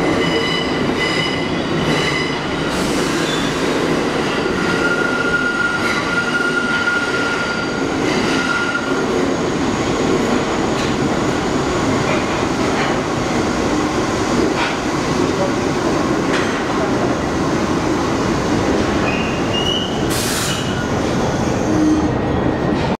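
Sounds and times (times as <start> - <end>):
steel wheels rumbling on rail: 0.0 - 23.0
high wheel squeal: 4.6 - 9.0, 19.0 - 20.8.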